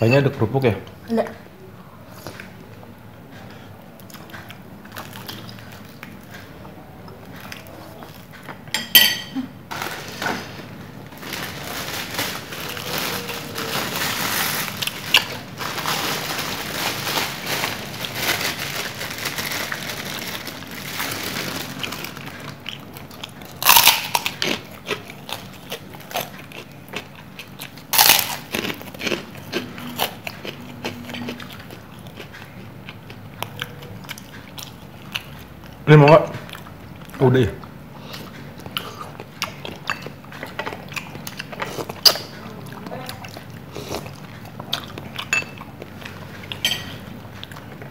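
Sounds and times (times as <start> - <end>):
crunching crisp snacks: 9.7 - 35.4.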